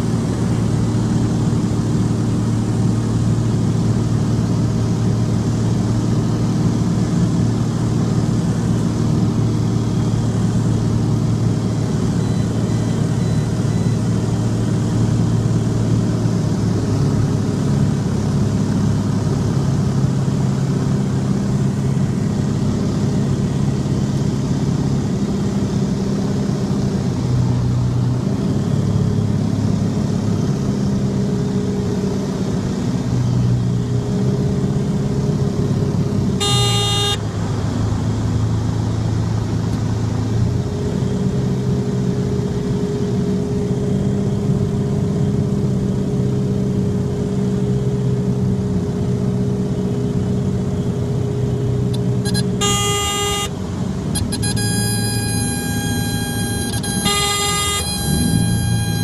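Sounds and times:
propeller engine droning: 0.0s - 59.0s
high cockpit warning horn: 36.4s - 37.3s, 51.9s - 59.0s.

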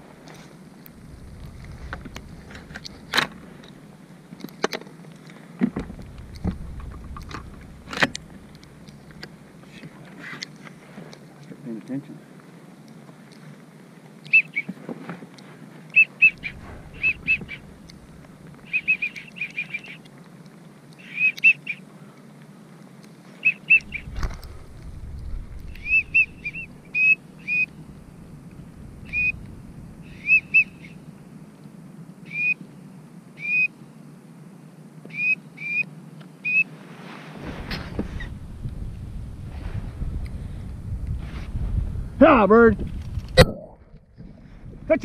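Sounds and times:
wind rumble on microphone: 0.0s - 4.2s, 5.6s - 10.0s, 16.3s - 19.0s, 23.7s - 31.3s, 37.3s - 45.0s
wigeon whistles: 14.3s - 14.7s, 15.9s - 17.7s, 18.6s - 20.0s, 21.0s - 21.8s, 23.4s - 24.2s, 25.6s - 27.7s, 29.0s - 29.4s, 30.0s - 31.0s, 32.3s - 32.6s, 33.4s - 33.7s, 35.1s - 35.8s, 36.4s - 36.7s.

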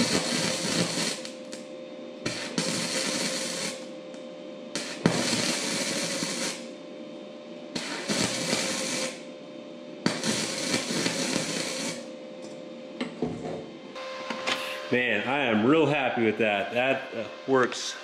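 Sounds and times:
welding arc crackling: 0.0s - 1.6s, 2.2s - 3.9s, 4.7s - 6.7s, 7.8s - 9.3s, 10.0s - 12.1s.

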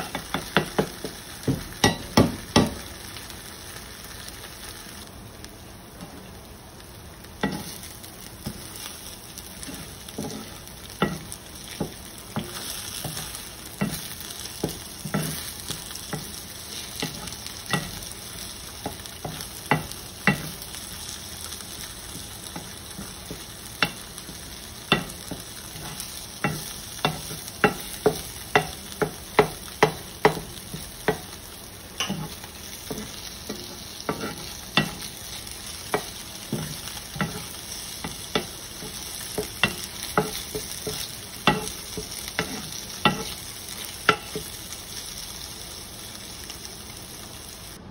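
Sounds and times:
eggs sizzling in a skillet: 0.0s - 47.9s
spatula scraping and knocking pan: 9.6s - 18.1s, 18.7s - 20.7s, 22.1s - 31.4s, 32.0s - 44.6s.

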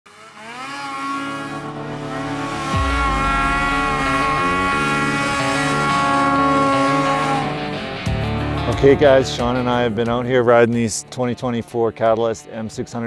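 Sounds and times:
music with sustained chords: 0.1s - 13.0s
heavy bass: 1.4s - 10.3s.

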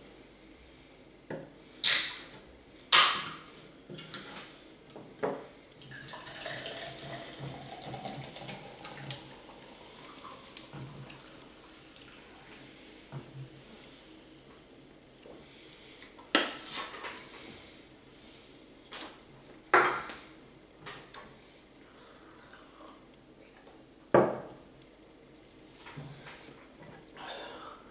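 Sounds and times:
soda pouring and fizzing: 5.8s - 12.3s.

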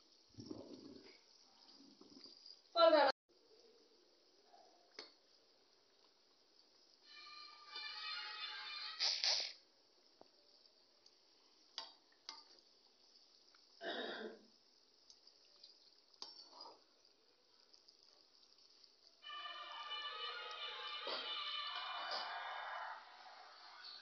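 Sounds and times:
food sizzling in oil: 14.6s - 24.0s.

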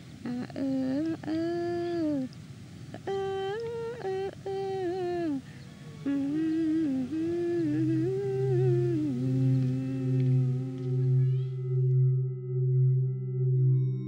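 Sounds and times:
high voice humming: 0.2s - 12.1s
steady low drone: 6.8s - 14.0s.

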